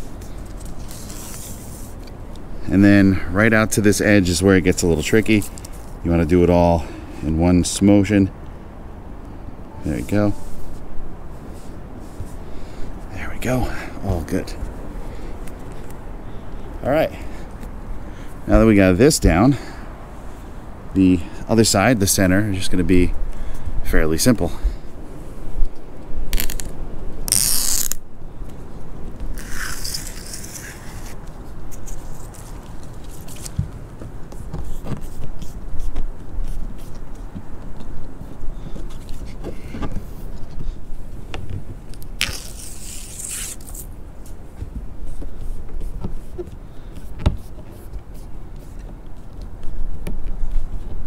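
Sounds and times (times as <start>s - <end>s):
adhesive tape liner peeling: 26.3s - 28.0s, 29.3s - 33.6s, 41.9s - 44.0s.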